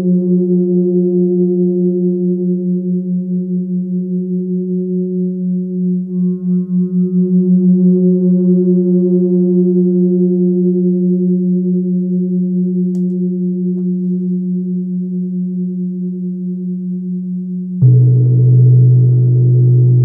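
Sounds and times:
gong ringing: 17.8s - 20.0s.

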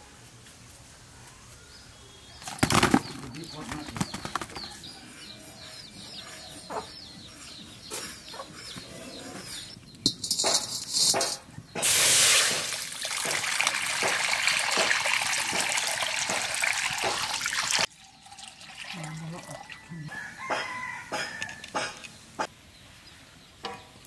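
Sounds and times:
water pouring into steel pot: 11.8s - 19.9s.

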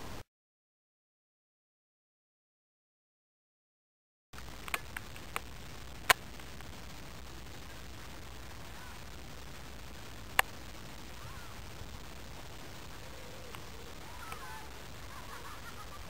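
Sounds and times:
outdoor background hiss: 0.0s - 0.2s, 4.4s - 16.0s
sharp clicks: 4.4s - 6.7s
faint bird calls: 11.0s - 11.9s, 12.6s - 16.0s.

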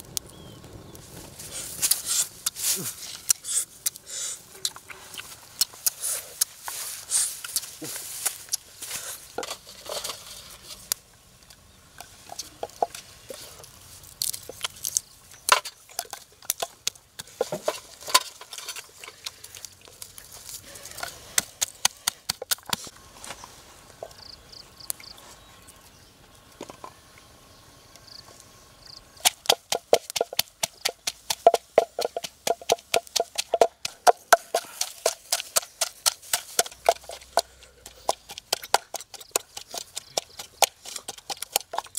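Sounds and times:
pestle pounding in wooden mortar: 29.2s - 41.9s.

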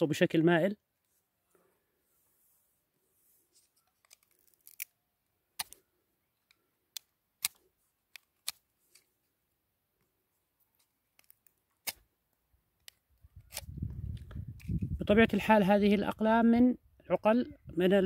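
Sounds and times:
knife cutting woody vine: 4.0s - 5.0s, 11.2s - 12.1s.

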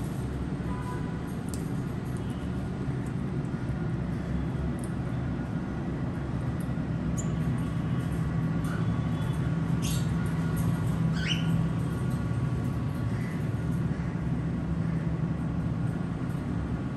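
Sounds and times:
parrots chirping and squeaking: 7.2s - 7.5s, 8.7s - 13.4s.

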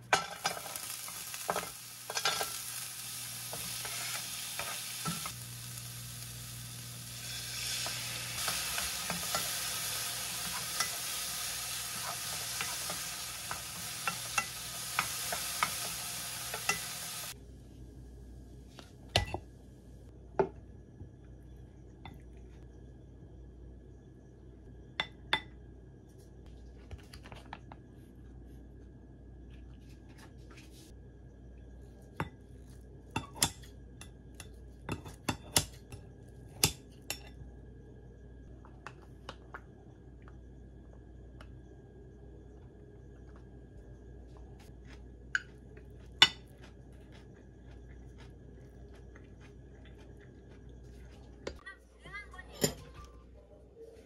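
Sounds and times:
low background hum: 0.0s - 54.0s
utensils clinking against ceramic bowl: 1.5s - 2.6s.

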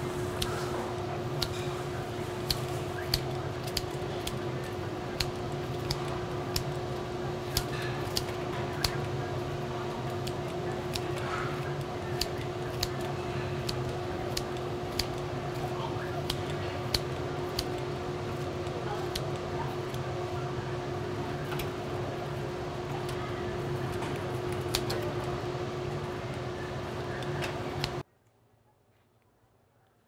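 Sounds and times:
steady hum: 0.0s - 28.1s
scissors snipping: 0.2s - 20.2s, 22.9s - 26.4s.

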